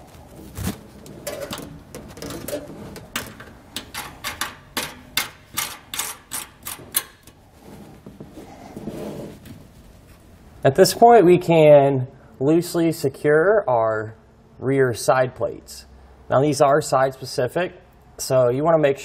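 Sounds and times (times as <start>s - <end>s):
handling and rubbing: 0.0s - 4.9s, 5.6s - 10.4s.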